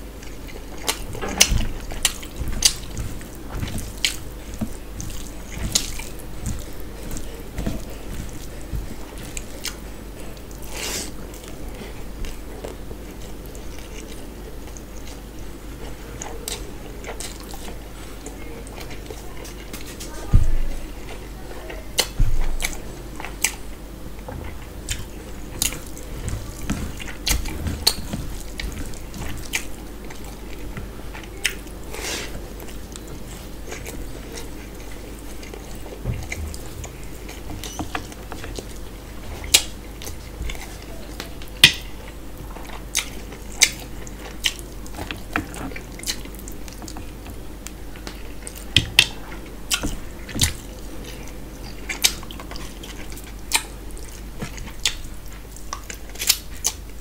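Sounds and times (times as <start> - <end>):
low steady hum: 0.0 - 57.0
wet chewing and lip smacks: 0.2 - 15.2, 39.4 - 56.9.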